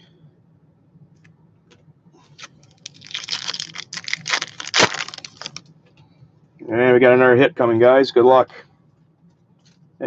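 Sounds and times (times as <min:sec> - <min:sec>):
foil wrapper crinkling: 0:02.3 - 0:05.7.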